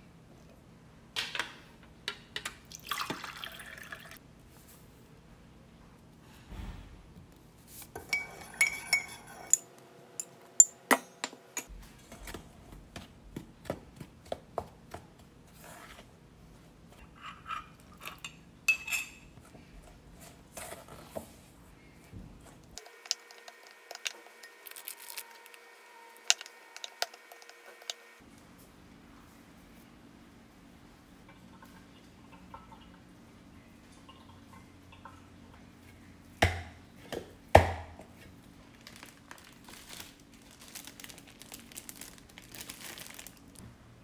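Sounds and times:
spatula scraping a metal bowl: 8.1s - 9.6s.

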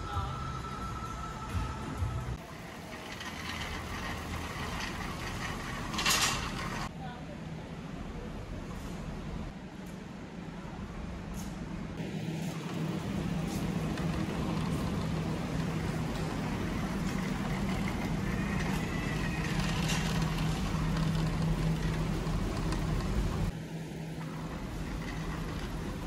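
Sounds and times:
shopping cart rattling on concrete: 2.4s - 6.9s, 12.7s - 23.5s, 24.2s - 26.0s
low hum: 11.8s - 26.0s.

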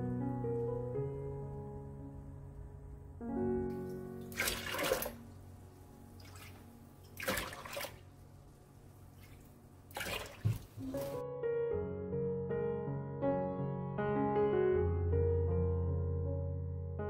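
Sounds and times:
soft piano music: 0.0s - 17.0s
liquid splashing into container: 4.2s - 5.2s, 6.2s - 8.1s, 9.2s - 11.2s.

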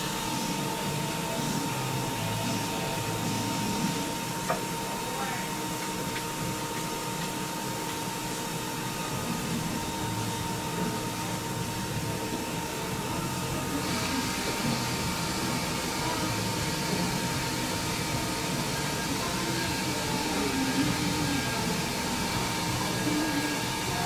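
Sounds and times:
small electric motor whining: 7.8s - 24.0s.

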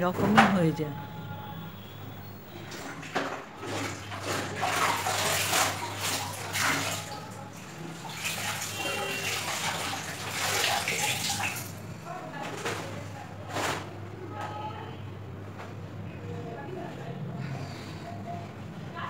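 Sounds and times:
water sloshing in a bucket: 2.4s - 14.0s.

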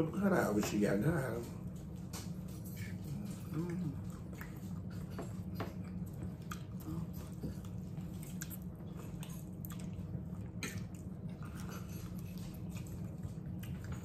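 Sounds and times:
steady low hum: 0.0s - 14.0s
wet chewing and mouth sounds: 0.6s - 14.0s.

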